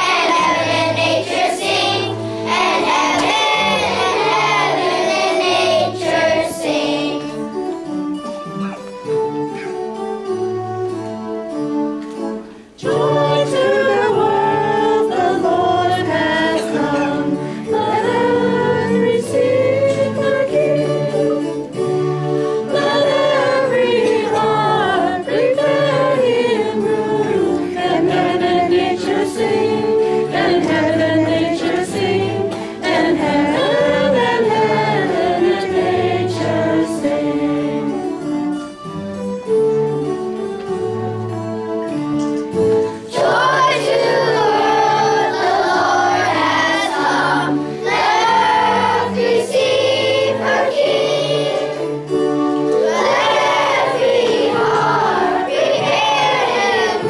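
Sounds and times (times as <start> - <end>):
children's choir singing: 0.0 - 57.0
low musical accompaniment: 0.0 - 57.0.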